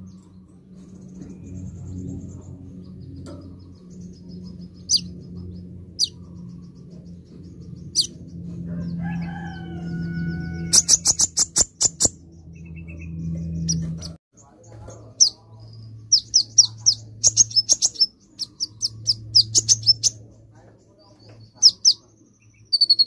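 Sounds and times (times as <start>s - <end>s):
sunbird twittering chirps: 0.0s - 23.0s
rooster crowing: 8.5s - 11.2s.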